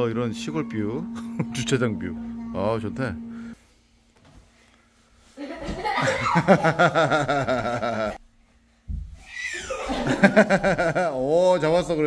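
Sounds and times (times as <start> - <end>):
people laughing: 5.4 - 8.2, 9.6 - 11.3.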